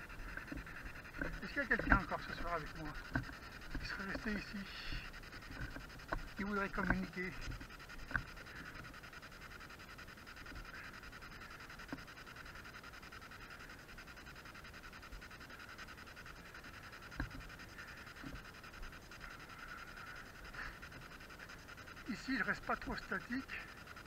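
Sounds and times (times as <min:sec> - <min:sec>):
faint steady hiss: 0:00.0 - 0:24.0.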